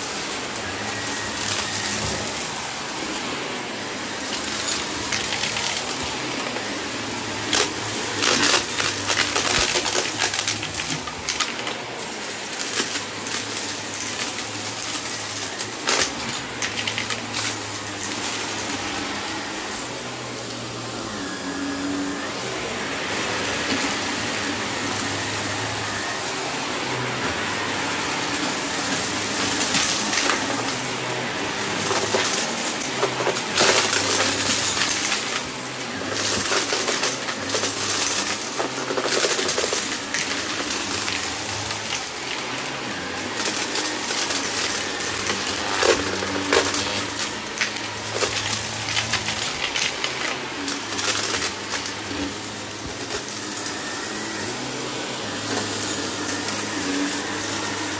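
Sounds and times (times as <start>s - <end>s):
vacuum cleaner motor: 0.0s - 57.9s
debris rattling through nozzle: 26.8s - 54.7s.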